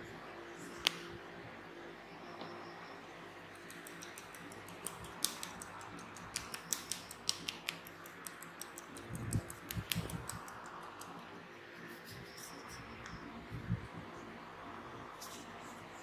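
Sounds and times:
massage tool clicking on skin: 3.6s - 11.2s.

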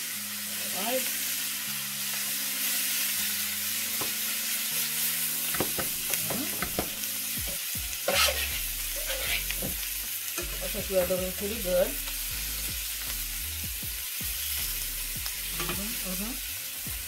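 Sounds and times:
chicken sizzling in a pan: 0.0s - 17.0s.

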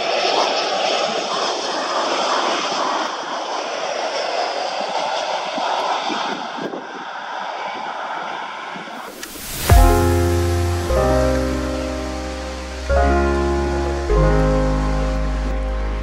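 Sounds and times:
jet engines rushing: 0.0s - 16.0s.

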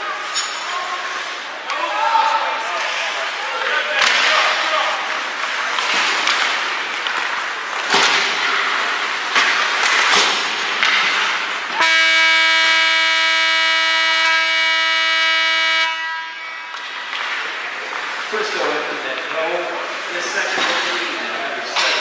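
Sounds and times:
hockey sticks and puck clacking: 0.1s - 11.8s, 16.5s - 22.0s
arena horn blaring: 11.7s - 16.7s.

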